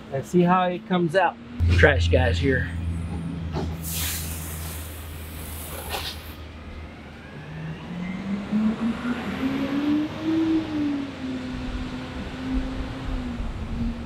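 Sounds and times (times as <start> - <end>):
vehicle engine speeding up: 1.6 - 5.6.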